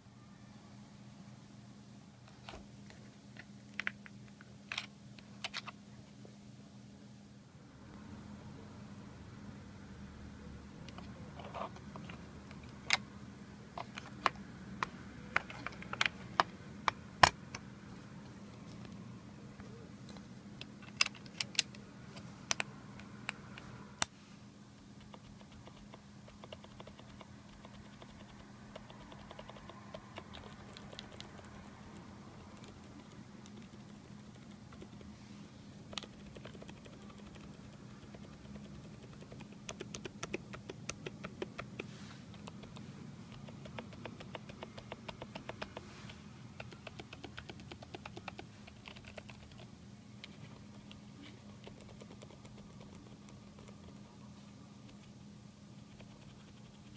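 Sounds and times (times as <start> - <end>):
keyboard keys clacking: 36.0 - 45.8.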